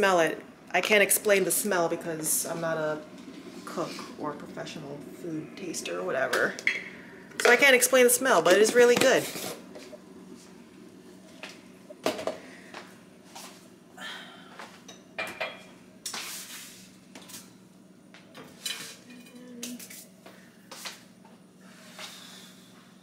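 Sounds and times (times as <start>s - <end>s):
steady low hum: 0.0s - 23.0s
dishes and utensils clattering: 14.9s - 15.7s, 18.4s - 19.5s.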